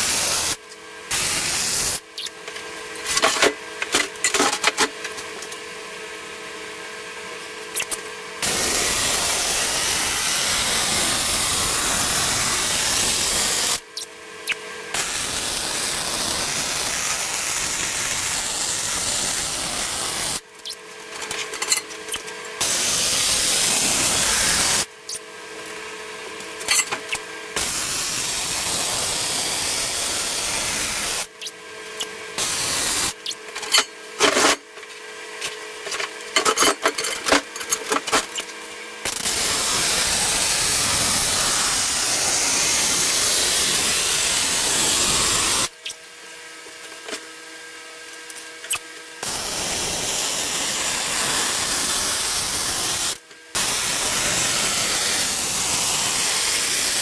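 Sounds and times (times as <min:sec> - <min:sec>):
welding arc crackling and hissing: 0:00.0 - 0:02.4, 0:07.7 - 0:25.2, 0:26.6 - 0:31.6, 0:32.3 - 0:34.6, 0:38.3 - 0:46.0, 0:48.3 - 0:57.0.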